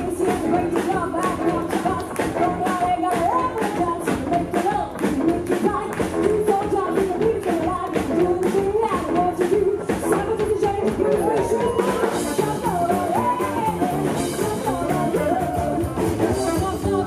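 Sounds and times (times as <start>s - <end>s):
rock and roll band playing: 0.0s - 17.0s
woman singing: 0.0s - 17.0s
double bass: 12.0s - 17.0s.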